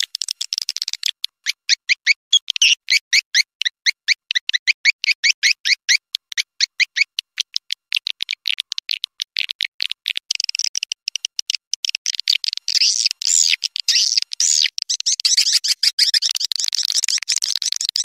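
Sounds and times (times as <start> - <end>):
swiftlet twittering chirps: 12.3 - 18.0.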